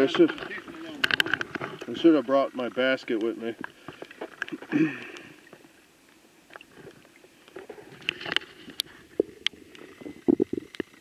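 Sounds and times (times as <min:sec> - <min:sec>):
water sloshing and splashing: 0:00.0 - 0:11.0
small clicks and knocks: 0:00.1 - 0:01.9, 0:06.5 - 0:11.0.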